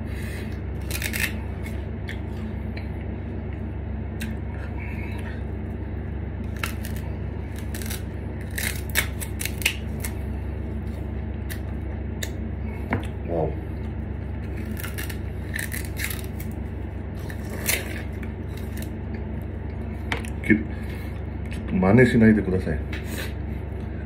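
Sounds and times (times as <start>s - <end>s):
sugarcane crunching while chewed: 0.4s - 5.4s, 6.4s - 12.4s, 13.8s - 20.5s.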